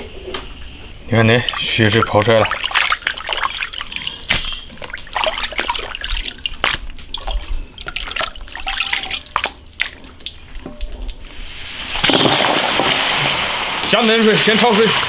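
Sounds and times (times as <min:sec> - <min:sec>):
water splashing and dripping: 0:01.3 - 0:15.0.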